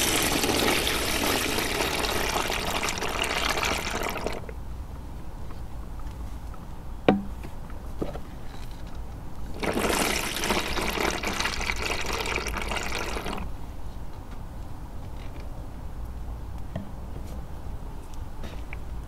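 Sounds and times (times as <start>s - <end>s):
water pouring onto chalk powder: 9.6s - 13.4s.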